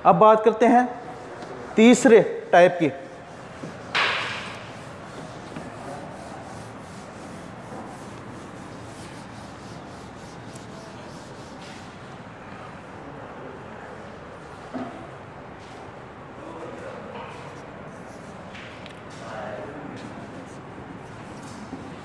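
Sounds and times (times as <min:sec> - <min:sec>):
steady background noise: 0:00.0 - 0:22.0
duster rubbing on whiteboard: 0:01.8 - 0:12.2, 0:17.3 - 0:18.6.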